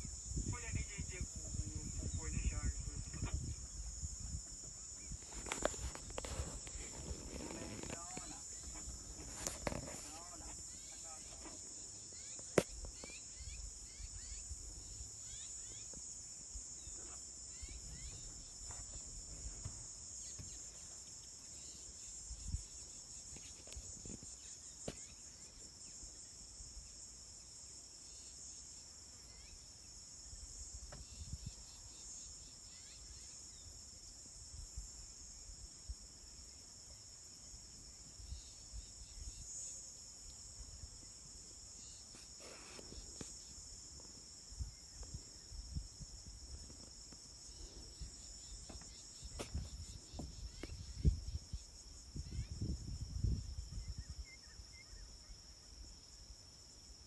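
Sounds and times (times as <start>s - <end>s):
insect chorus: 0.0s - 57.0s.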